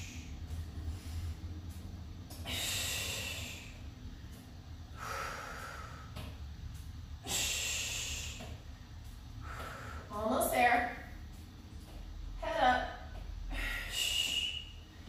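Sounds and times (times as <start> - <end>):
woman breathing hard: 0.0 - 6.4, 7.2 - 10.1, 13.4 - 15.0.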